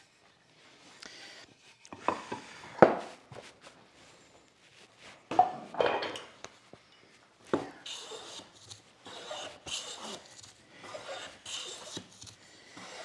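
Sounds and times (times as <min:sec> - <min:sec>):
hand plane cutting shavings: 0:07.8 - 0:13.0.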